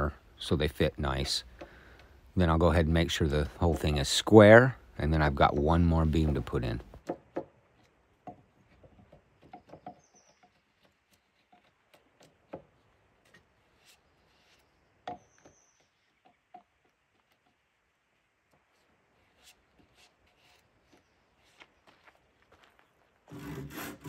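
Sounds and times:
hand tool scraping wood: 2.5s - 7.0s, 8.6s - 15.5s, 18.6s - 21.8s, 23.3s - 24.0s.

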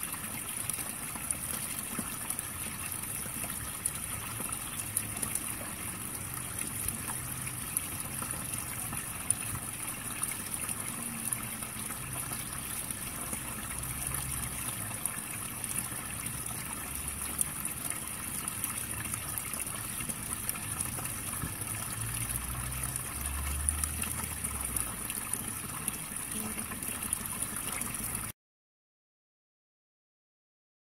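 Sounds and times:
water trickling into pond: 0.0s - 28.4s.

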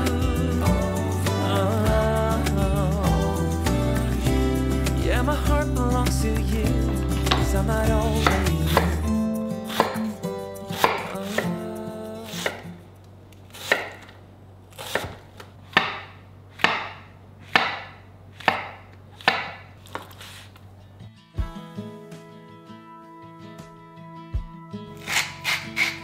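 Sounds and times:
guitar music: 0.0s - 13.0s, 20.8s - 26.0s.

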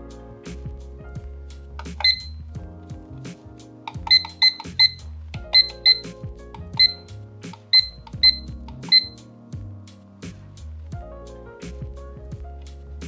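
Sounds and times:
background music: 0.0s - 13.0s
alarm clock short high beeps: 2.0s - 2.4s, 4.1s - 6.0s, 6.8s - 7.0s, 7.7s - 9.2s.

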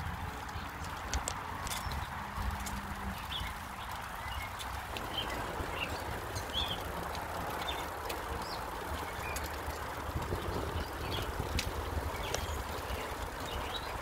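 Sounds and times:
bicycle tyres rumbling on concrete: 0.0s - 14.0s
small birds chirping: 0.2s - 14.0s
wind on microphone: 9.9s - 14.0s.

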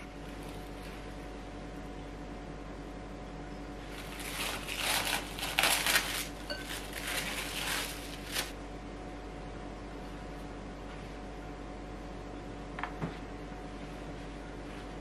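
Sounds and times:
plastic cling wrap crinkling: 0.2s - 1.1s, 3.9s - 8.6s.

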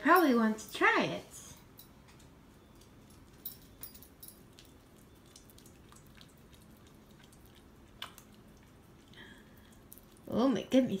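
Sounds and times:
dog licking spoon: 4.4s - 10.4s.

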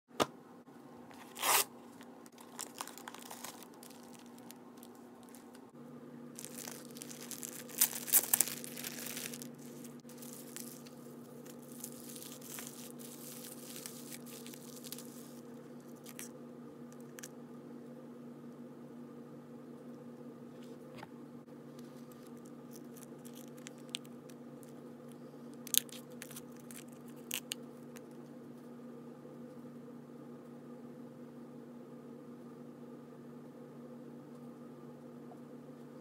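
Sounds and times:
paper mailer ripping: 1.2s - 1.7s, 2.3s - 4.6s, 6.4s - 15.4s
bubble-wrap pouch crinkling: 2.3s - 5.6s, 6.4s - 16.3s, 22.0s - 24.8s, 25.6s - 28.1s.

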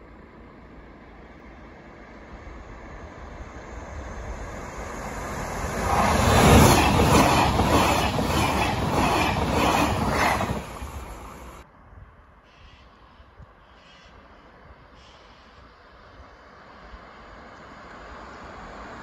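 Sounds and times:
passenger train passing: 0.0s - 11.6s
train wheels clattering: 5.7s - 11.6s.

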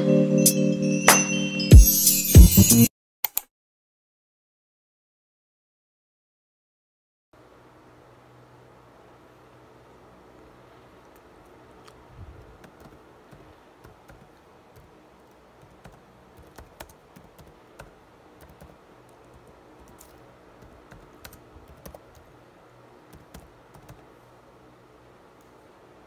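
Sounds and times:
laptop keyboard typing: 3.3s - 3.5s, 12.4s - 22.3s, 23.1s - 24.2s.

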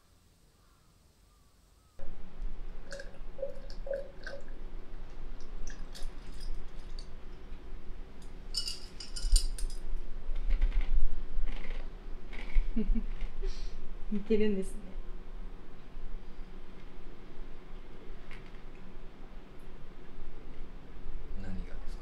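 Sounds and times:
low steady hum: 0.0s - 22.0s
ice being chewed: 5.6s - 7.1s, 10.4s - 13.3s.

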